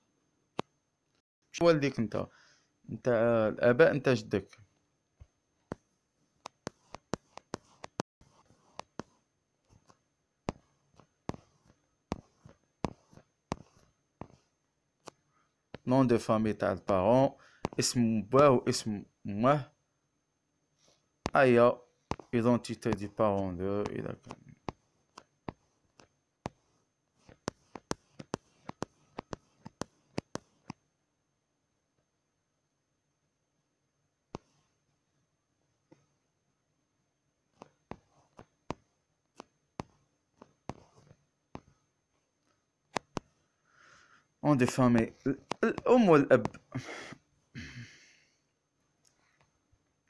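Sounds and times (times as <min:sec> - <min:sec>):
fingers tapping touchscreen: 0:05.7 - 0:15.2, 0:22.1 - 0:30.8, 0:37.6 - 0:41.8, 0:42.9 - 0:43.4, 0:44.7 - 0:46.8.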